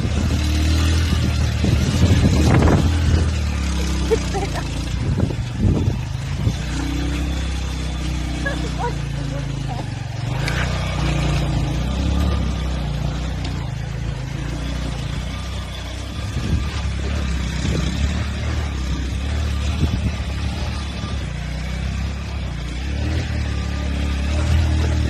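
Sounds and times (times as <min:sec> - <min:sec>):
wind rushing over microphone: 0:00.0 - 0:03.9, 0:04.9 - 0:06.8, 0:16.1 - 0:18.3, 0:19.6 - 0:20.3
motorcycle engine running: 0:00.0 - 0:25.0.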